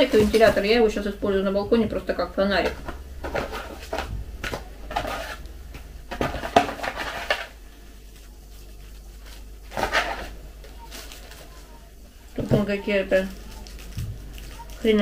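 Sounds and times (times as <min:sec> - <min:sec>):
cardboard and paper rustling: 0:00.0 - 0:00.8, 0:02.6 - 0:05.4, 0:06.1 - 0:15.0
low steady hum: 0:00.0 - 0:15.0.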